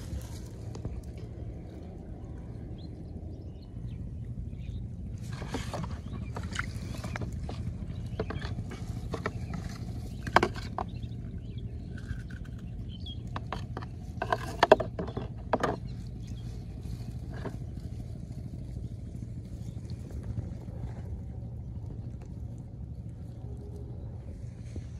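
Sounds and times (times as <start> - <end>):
steady low rumble: 0.0 - 24.9
handling clicks and crinkles: 5.2 - 18.6.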